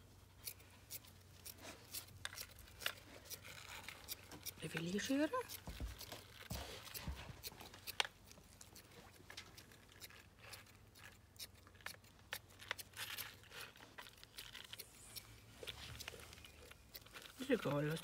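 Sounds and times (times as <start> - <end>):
small scissors snipping: 0.4 - 6.1.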